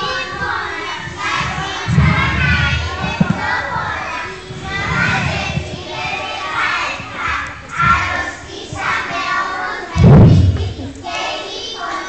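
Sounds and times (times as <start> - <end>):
schoolchildren chattering: 0.0 - 12.0
loud low thud: 1.8 - 3.5, 10.0 - 10.9.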